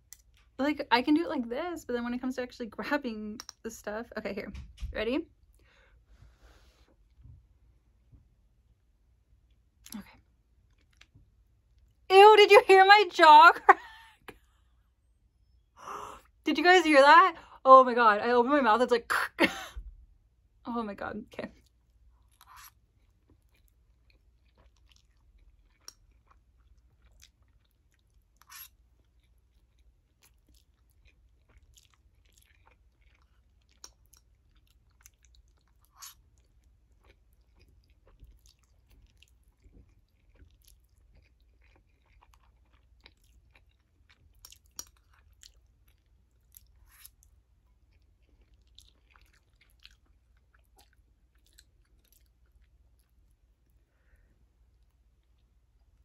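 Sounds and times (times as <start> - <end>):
person chewing noodles: 9.3 - 11.9, 21.6 - 56.0.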